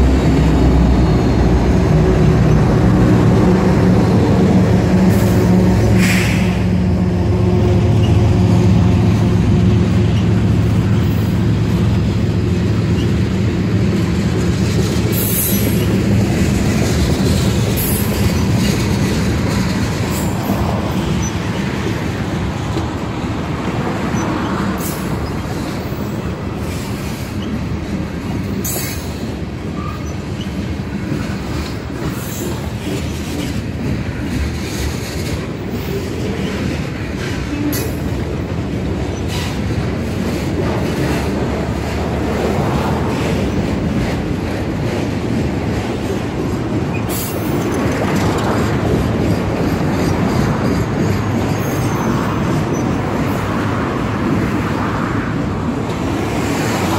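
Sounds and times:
locomotive hum: 0.0s - 56.9s
train cars rolling rumble: 0.0s - 56.9s
wheels clicking and squealing: 9.4s - 22.1s, 24.0s - 41.4s, 46.8s - 53.3s.

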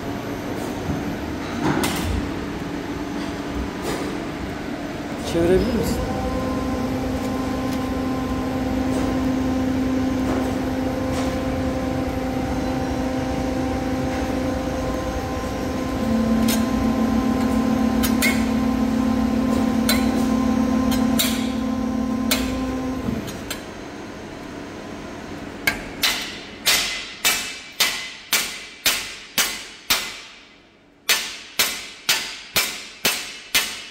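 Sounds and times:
electric machine humming: 4.4s - 25.1s
lower machine tone: 4.5s - 25.4s.

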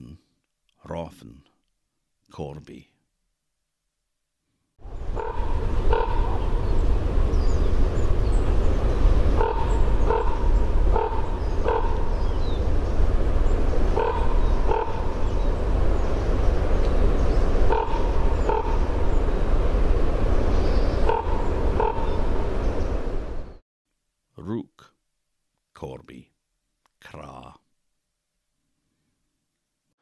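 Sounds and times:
low background rumble: 4.8s - 23.6s
raven croaking: 4.9s - 16.4s, 17.1s - 19.6s, 20.9s - 22.4s.

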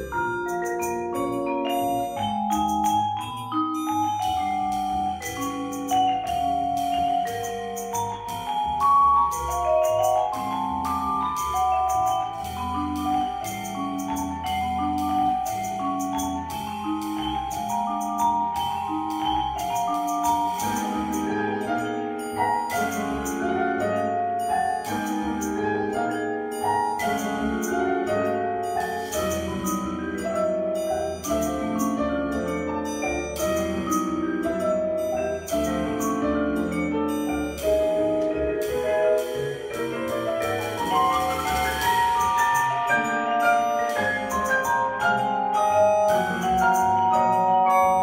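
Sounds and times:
double bass: 0.0s - 48.0s
vibraphone runs: 0.0s - 48.0s
drum kit: 33.3s - 45.2s.

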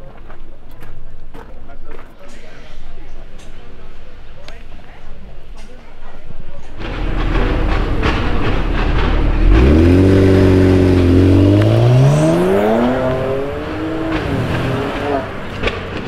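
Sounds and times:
exhaust rumble with crackles: 6.5s - 16.0s
car engine accelerating: 6.8s - 16.0s.

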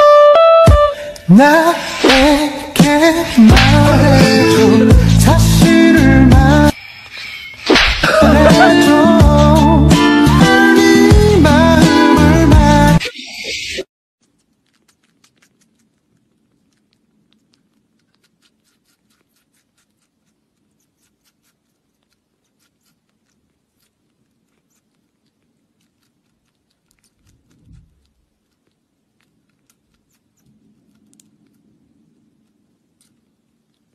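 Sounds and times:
kitten suckling clicks: 14.2s - 33.9s.

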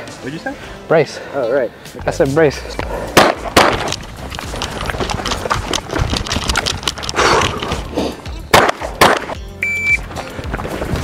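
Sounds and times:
gunshots: 3.2s - 4.0s, 8.5s - 9.4s.

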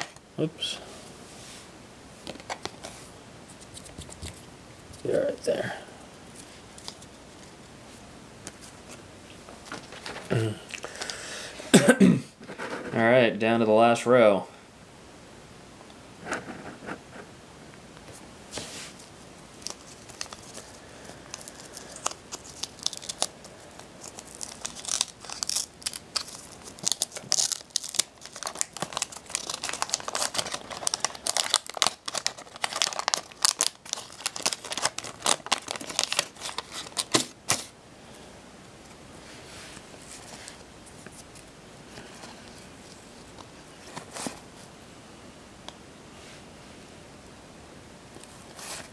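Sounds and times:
paper wrapper tearing and crinkling: 19.5s - 37.7s.

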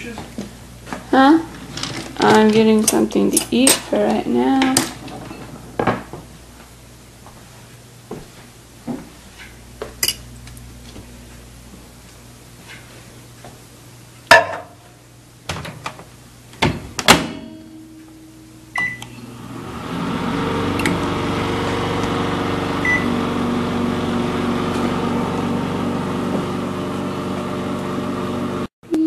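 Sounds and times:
microwave oven humming: 0.0s - 29.0s.

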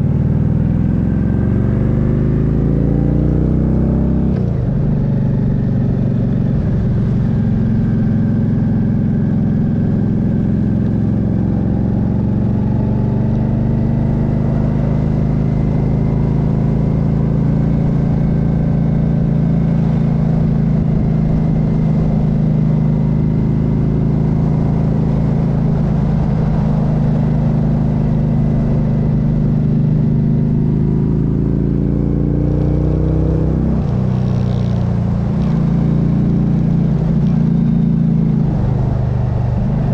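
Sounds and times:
motorcycle engine running: 0.0s - 39.9s
wind rush on microphone: 38.4s - 39.9s.

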